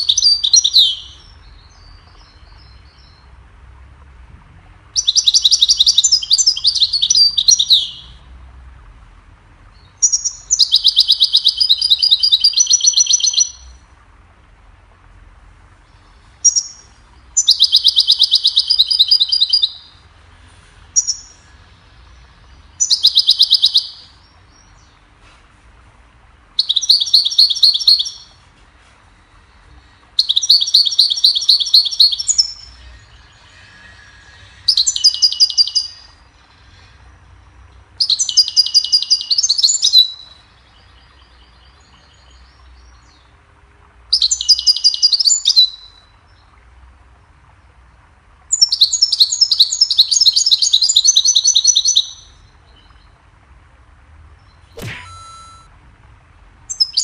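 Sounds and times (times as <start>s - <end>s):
goldfinch twittering song: 0.0s - 3.4s, 4.9s - 8.3s, 9.6s - 13.9s, 15.8s - 25.1s, 26.6s - 28.4s, 29.4s - 43.5s, 44.1s - 46.7s, 48.5s - 53.2s, 54.4s - 55.7s, 56.7s - 57.0s.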